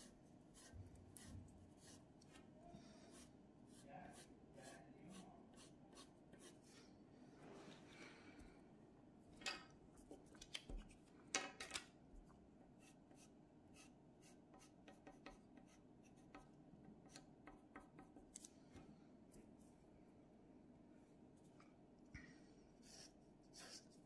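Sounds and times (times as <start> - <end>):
pencil scratching on paper: 0.0 - 2.0, 3.1 - 6.7, 12.8 - 18.1, 22.8 - 24.0.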